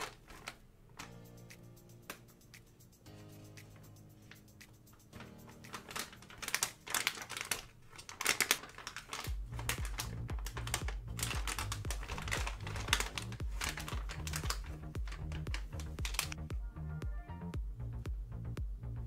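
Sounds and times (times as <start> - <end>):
plastic bag crinkling: 0.0 - 1.1, 5.2 - 16.4
music with bass beat: 9.3 - 19.0.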